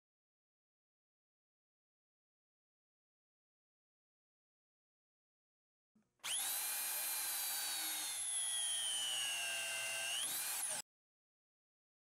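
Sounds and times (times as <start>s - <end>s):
shear wrench motor whine: 6.2s - 10.8s.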